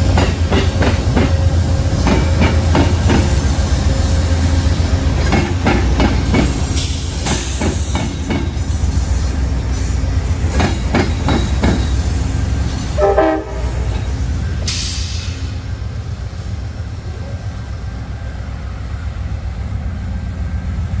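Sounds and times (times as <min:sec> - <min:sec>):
diesel train rumbling: 0:00.0 - 0:21.0
train horn toot: 0:13.0 - 0:14.0.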